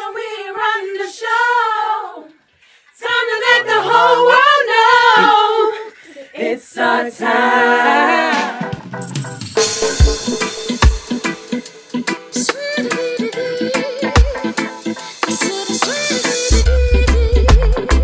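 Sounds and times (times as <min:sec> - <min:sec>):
women singing a cappella: 0:00.0 - 0:08.7.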